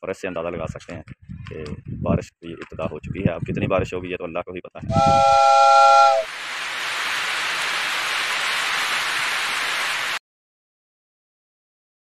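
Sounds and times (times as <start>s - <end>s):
held tone: 4.9s - 6.3s
rain on pavement: 6.2s - 10.2s.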